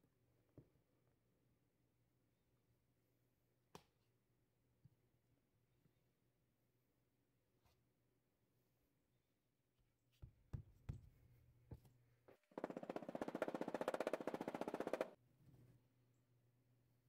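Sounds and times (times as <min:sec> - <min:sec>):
rubber mallet knocking sand: 0:12.6 - 0:15.2.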